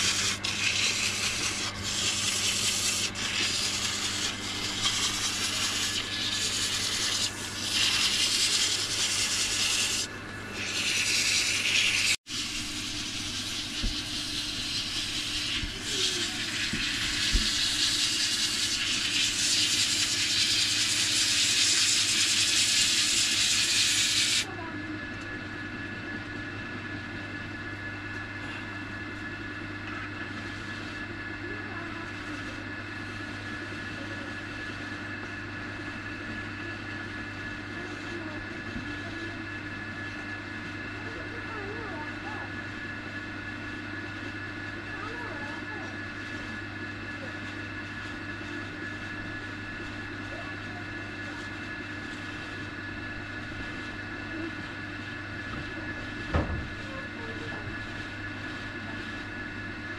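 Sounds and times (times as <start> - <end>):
tool scraping wood: 0.0 - 24.4
steady low hum: 0.0 - 59.9.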